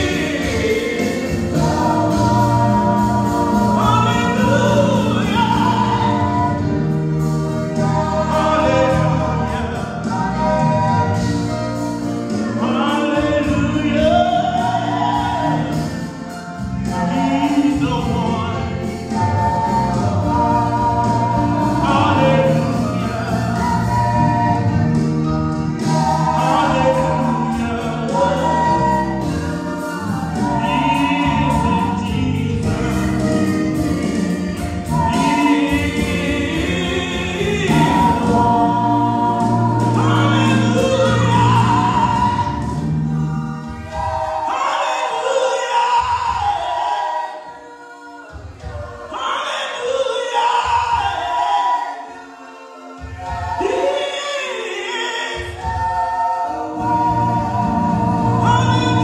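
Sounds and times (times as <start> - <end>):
gospel choir singing: 0.0 - 59.0.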